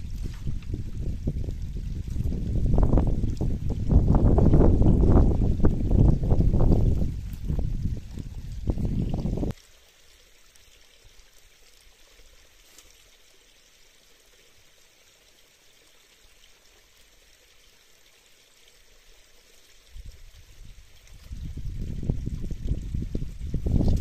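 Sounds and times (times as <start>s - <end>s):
wind buffeting microphone: 0.0s - 9.5s, 19.9s - 24.0s.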